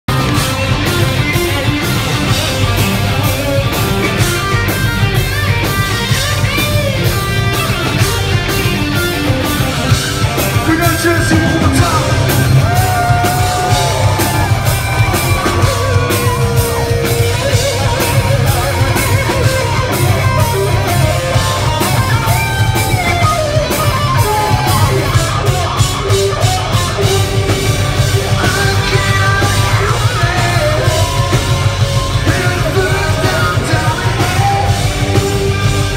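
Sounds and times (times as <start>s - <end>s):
hard rock band playing: 0.1s - 35.9s
singer yelling: 10.2s - 27.1s.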